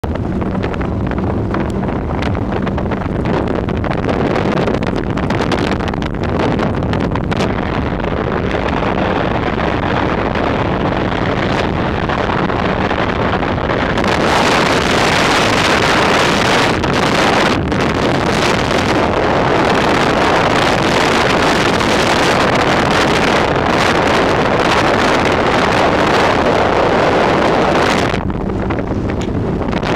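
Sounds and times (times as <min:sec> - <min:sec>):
outboard motor running fast: 0:00.0 - 0:29.9
wind buffeting microphone: 0:00.0 - 0:29.9.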